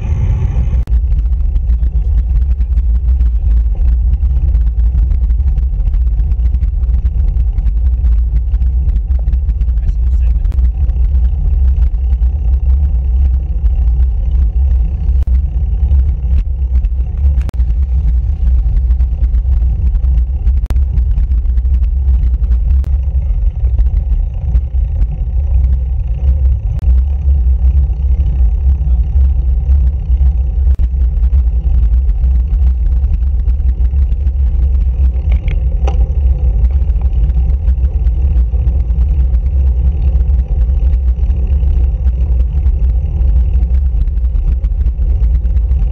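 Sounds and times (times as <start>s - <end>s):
road rumble: 0.0s - 45.9s
wind buffeting: 0.0s - 45.9s.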